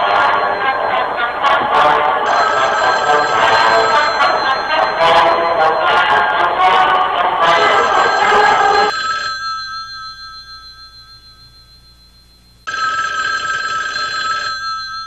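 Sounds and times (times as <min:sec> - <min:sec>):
telephone ringing: 0:00.0 - 0:15.0
music: 0:03.6 - 0:08.9.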